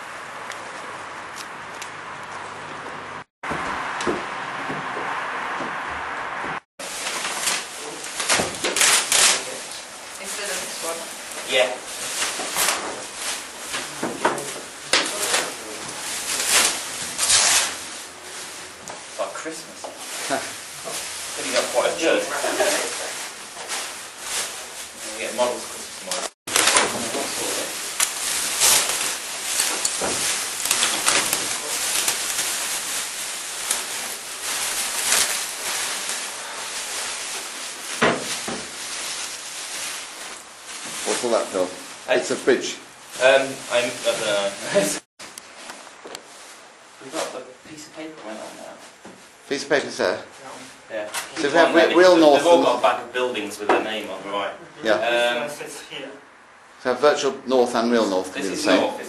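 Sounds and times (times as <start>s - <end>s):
plastic bags rustling: 6.8s - 47.6s.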